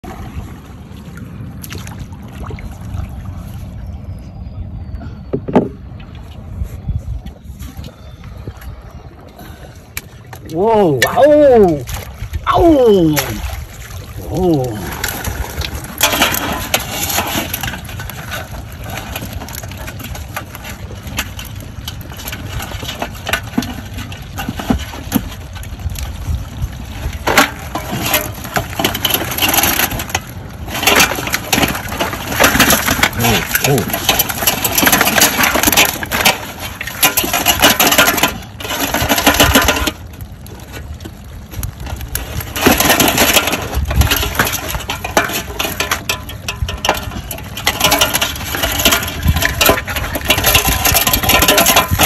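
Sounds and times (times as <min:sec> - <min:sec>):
low rumble of water and wind: 0:00.0 - 0:52.0
crabs knocking against metal basin: 0:14.8 - 0:25.6, 0:27.0 - 0:40.1, 0:42.4 - 0:52.0
crab trap clicking and rattling: 0:14.8 - 0:52.0.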